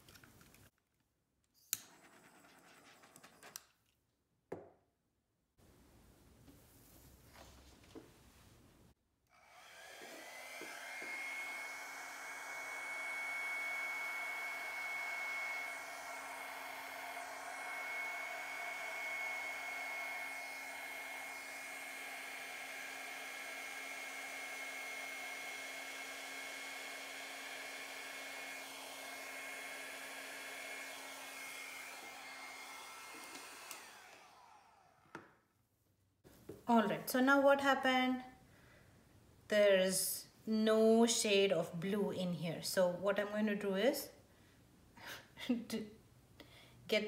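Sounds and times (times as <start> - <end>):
hair dryer running: 9.4 - 35.4.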